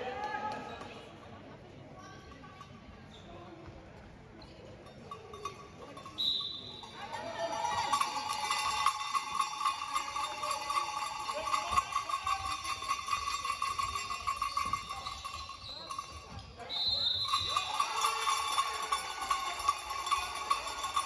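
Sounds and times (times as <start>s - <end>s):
bell ringing rapidly: 5.2s - 21.0s.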